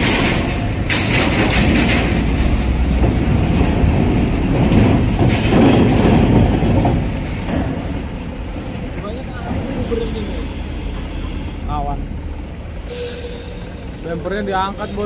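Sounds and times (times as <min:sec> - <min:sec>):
knocks: 0:00.0 - 0:08.2
metallic rattling and clanks: 0:00.0 - 0:10.2
heavy truck rumbling: 0:00.0 - 0:15.0.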